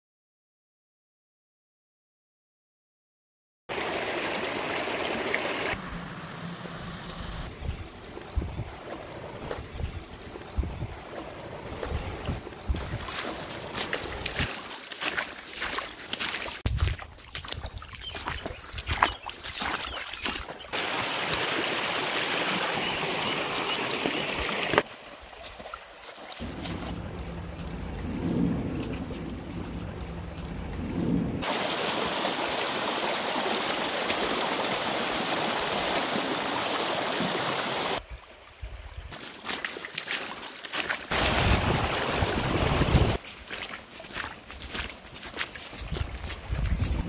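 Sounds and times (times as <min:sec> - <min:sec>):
stream rushing over stones: 0:03.7 - 0:05.8, 0:07.5 - 0:38.0, 0:39.1 - 0:47.0
wind buffeting microphone: 0:07.4 - 0:14.5, 0:26.4 - 0:31.5, 0:41.1 - 0:43.2, 0:45.8 - 0:47.0.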